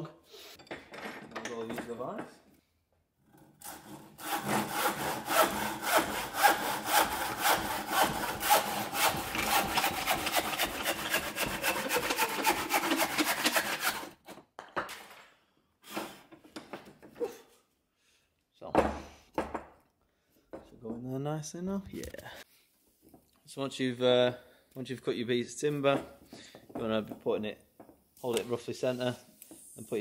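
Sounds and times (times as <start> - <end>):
hand saw cutting timber: 3.6 - 14.2.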